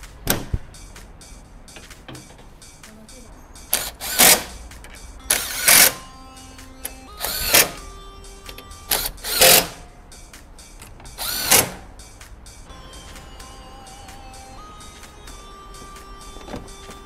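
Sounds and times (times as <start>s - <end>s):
quiet background music: 0.0s - 17.0s
power tool bursts: 3.7s - 4.5s, 5.3s - 6.0s, 7.2s - 7.8s, 8.9s - 9.8s, 11.1s - 11.9s.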